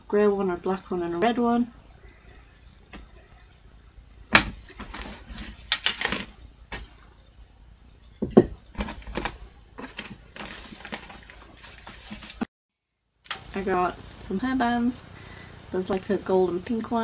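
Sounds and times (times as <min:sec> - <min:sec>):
clothes and bag rustling: 0:01.5 - 0:07.4, 0:08.0 - 0:12.5.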